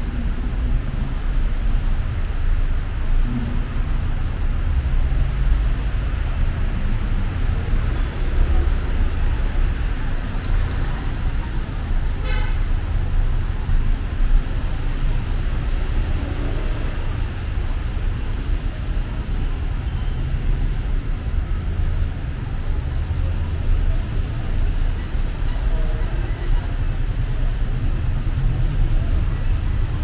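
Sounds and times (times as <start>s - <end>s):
city street traffic: 0.0s - 30.0s.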